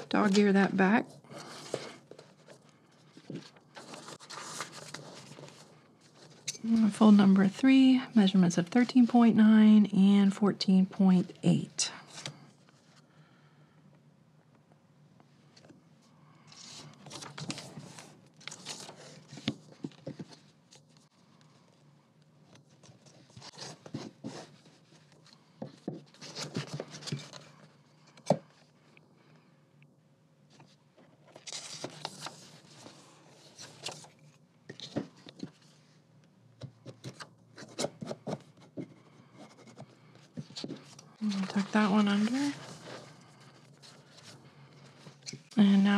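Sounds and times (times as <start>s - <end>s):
paper rustling and rubbing: 1.4s - 6.5s, 39.3s - 45.4s.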